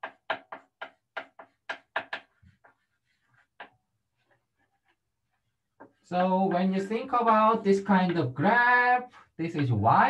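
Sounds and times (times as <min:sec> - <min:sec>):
pen tapping on writing surface: 0:00.0 - 0:03.8.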